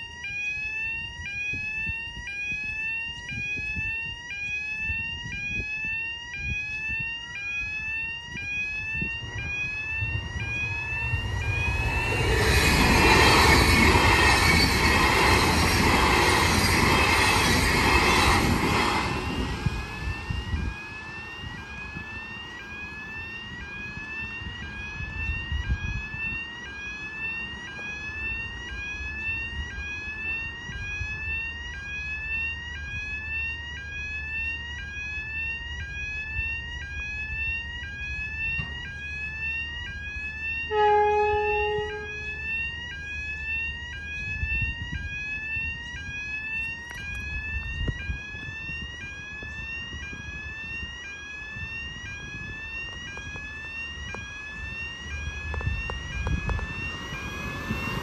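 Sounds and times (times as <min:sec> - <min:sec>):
rising electronic warning tone: 0:00.0 - 0:58.0
train rumbling past: 0:09.2 - 0:31.0, 0:40.7 - 0:42.6, 0:54.2 - 0:58.0
train horn blast: 0:40.7 - 0:42.4.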